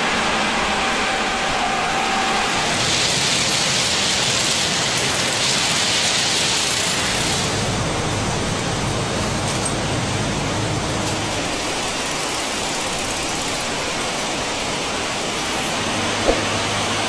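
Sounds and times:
track-laying machine running: 0:00.0 - 0:17.0
ballast pouring from chute: 0:02.4 - 0:07.8.

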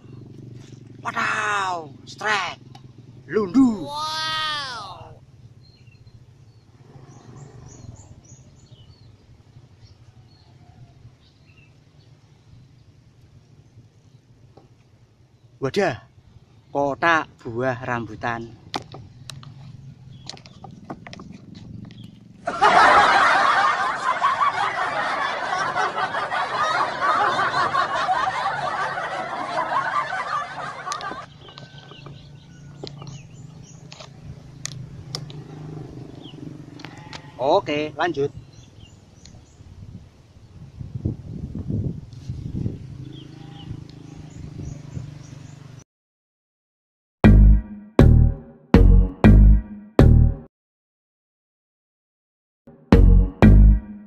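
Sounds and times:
canned laughter: 0:22.4 - 0:31.3.

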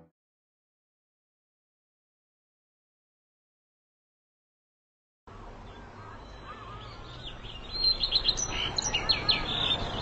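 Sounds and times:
birds chirping: 0:05.3 - 0:10.0.

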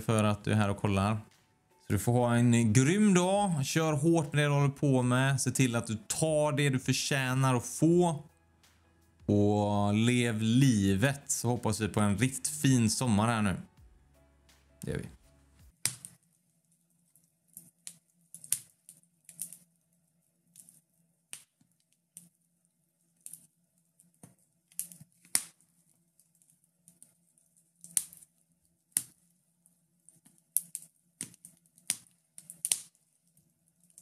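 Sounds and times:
wood fire crackling: 0:00.0 - 0:08.3, 0:30.1 - 0:33.0.

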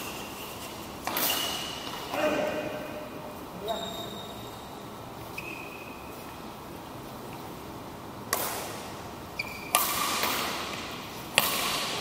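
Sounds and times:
racket hitting shuttlecock: 0:01.0 - 0:02.5, 0:08.2 - 0:12.0
hall echo: 0:01.7 - 0:04.5.

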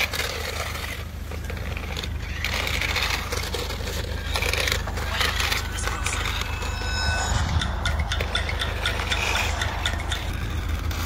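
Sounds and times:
toy car wheels scraping on asphalt: 0:00.0 - 0:07.0.

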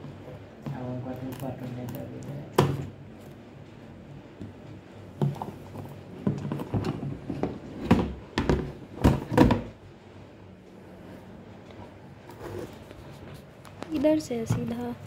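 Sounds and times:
plastic cover knocking and clacking: 0:06.2 - 0:09.8.

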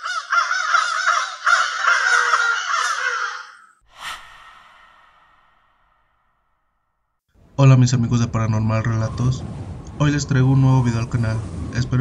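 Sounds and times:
crows cawing: 0:00.0 - 0:03.8.

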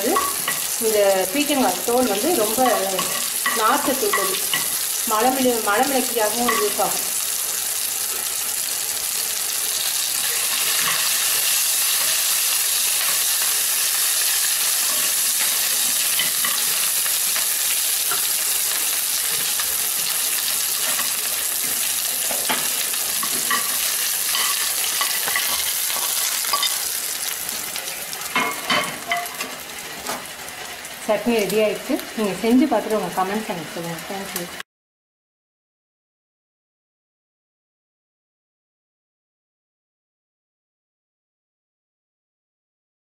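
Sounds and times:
hot oil sizzling: 0:00.0 - 0:34.6
spoon stirring and scraping: 0:10.3 - 0:13.4, 0:20.8 - 0:27.6.

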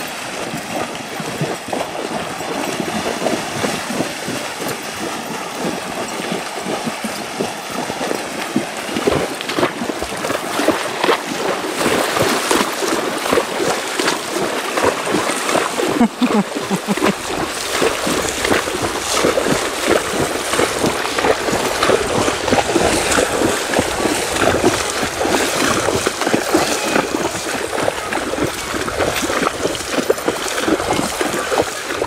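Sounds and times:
horses splashing through water: 0:00.0 - 0:32.0.

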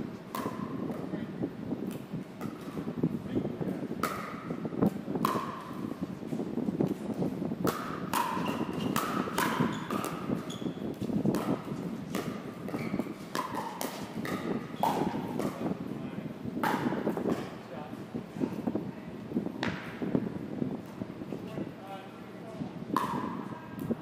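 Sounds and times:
paddles striking plastic ball: 0:11.3 - 0:15.6.

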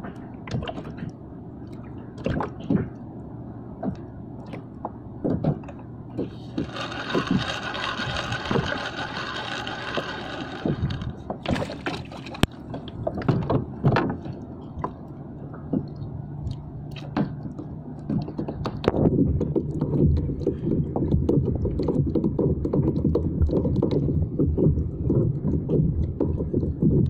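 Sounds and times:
water lapping against a hull: 0:00.0 - 0:06.6, 0:11.1 - 0:27.0
spinning reel whirring: 0:06.3 - 0:12.5.

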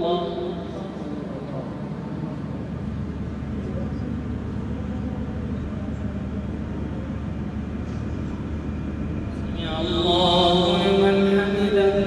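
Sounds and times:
man chanting a long call: 0:00.0 - 0:01.9, 0:09.4 - 0:12.0
steady low hum: 0:00.0 - 0:12.0.

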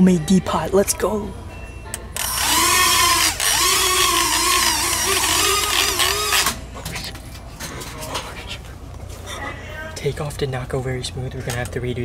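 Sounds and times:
drone propellers whirring: 0:02.2 - 0:06.6.

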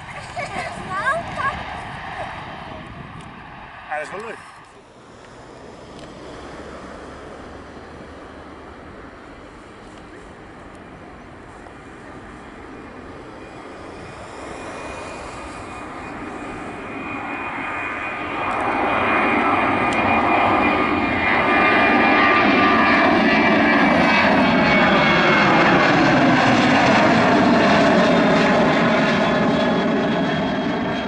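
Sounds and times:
jet engines at takeoff power: 0:00.0 - 0:31.0
thin high whine: 0:13.2 - 0:18.2.

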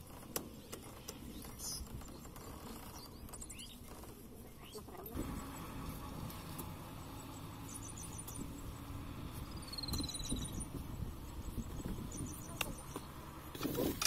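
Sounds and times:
low steady rumble: 0:00.0 - 0:14.0
small birds chirping: 0:00.0 - 0:14.0.

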